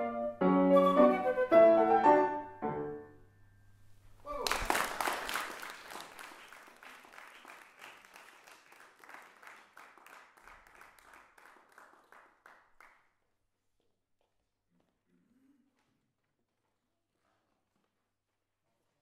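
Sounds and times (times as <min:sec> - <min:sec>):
audience applause: 0:04.3 - 0:13.0.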